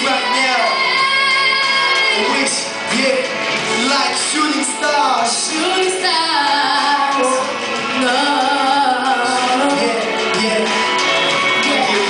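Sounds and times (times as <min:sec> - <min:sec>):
backing music: 0:00.0 - 0:12.0
man and woman singing duet: 0:00.0 - 0:12.0.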